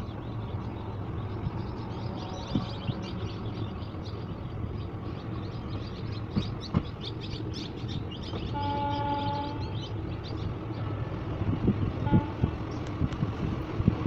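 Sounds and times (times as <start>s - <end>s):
small birds chirping: 0.0s - 13.1s
steady low rumble: 0.0s - 14.0s
train horn: 8.5s - 9.8s, 12.0s - 12.6s.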